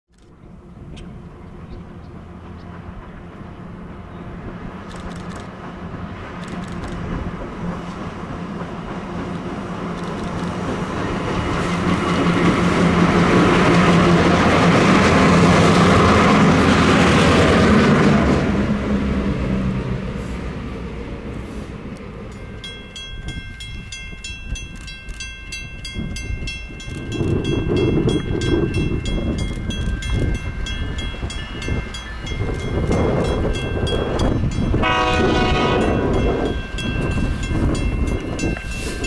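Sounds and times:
diesel locomotives exhaust barking: 32.9 - 36.4.

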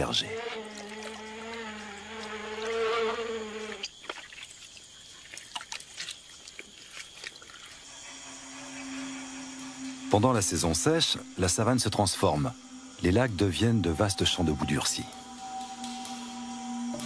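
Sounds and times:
high insect tone: 0.0 - 17.0
insect buzz: 0.0 - 17.0.

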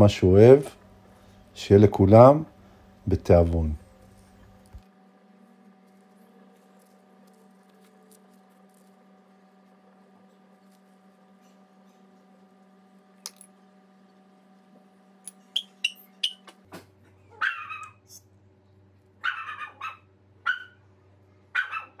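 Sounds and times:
low hum: 0.0 - 17.3
dog yipping and barking: 17.3 - 18.0, 19.2 - 20.8, 21.5 - 22.0.

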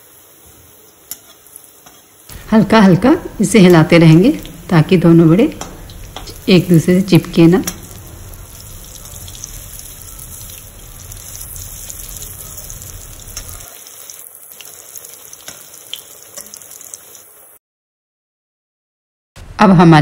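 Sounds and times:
food sizzling in hot oil: 0.0 - 17.6
oil crackles: 7.7 - 17.3.

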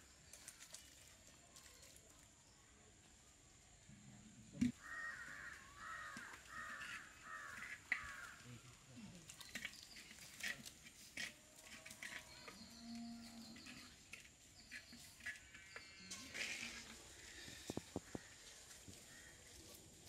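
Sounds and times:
crow cawing: 4.8 - 8.4, 19.1 - 19.4.

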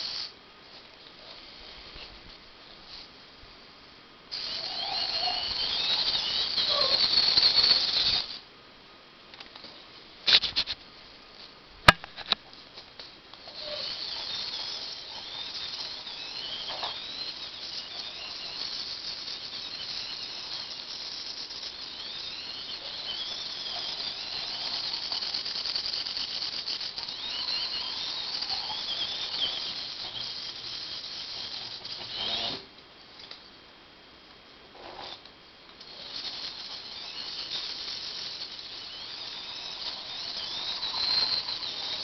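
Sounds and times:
small gear motors whirring: 4.3 - 8.4, 13.4 - 32.6, 35.8 - 42.0.

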